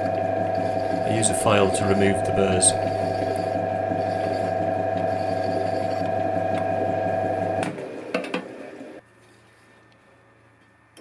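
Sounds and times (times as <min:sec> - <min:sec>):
hand file on steel tube: 0:00.0 - 0:06.2
metal lathe whine: 0:00.0 - 0:07.7.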